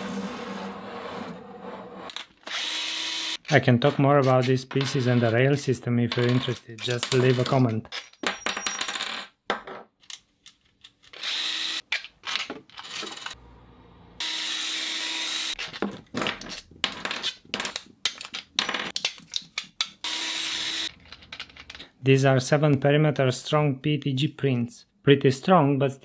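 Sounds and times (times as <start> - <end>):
cordless drill running: 2.4 - 3.4, 11.2 - 11.8, 14.2 - 15.6, 20.0 - 20.9
plastic parts clicking and knocking: 6.1 - 11.2, 11.8 - 13.4, 15.6 - 20.0, 20.9 - 22.0.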